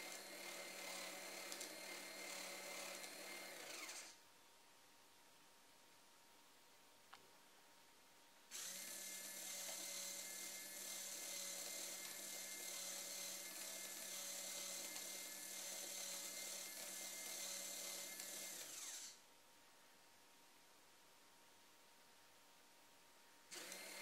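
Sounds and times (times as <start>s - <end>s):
servo motor whining: 2.9s - 4.2s, 8.5s - 19.2s, 23.5s - 24.0s.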